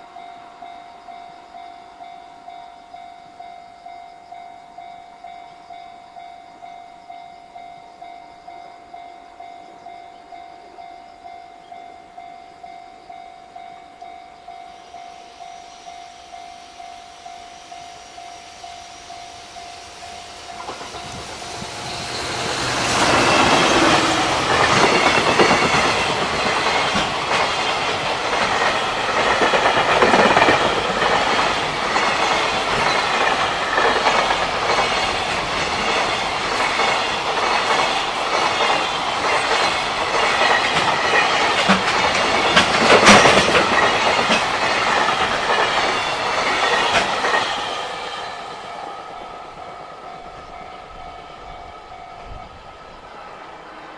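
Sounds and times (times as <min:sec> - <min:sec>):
level crossing warning bell: 0:00.0 - 0:53.1
freight train passing: 0:00.0 - 0:53.9
wheels clicking over rail joints: 0:19.1 - 0:52.5.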